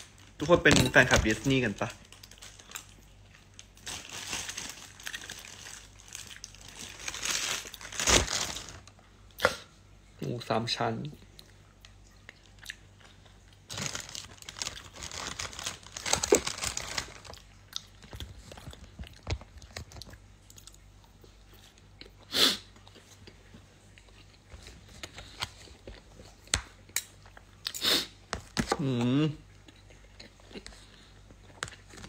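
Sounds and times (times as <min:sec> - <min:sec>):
person chewing crunchy food: 0:11.2 - 0:27.8, 0:29.4 - 0:32.0.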